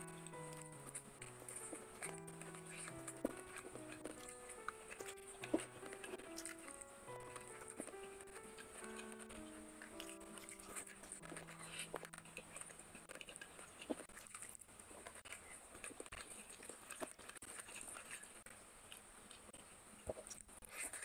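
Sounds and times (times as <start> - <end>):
background music: 0.0 - 12.9
chewing with wet mouth clicks: 0.0 - 21.0.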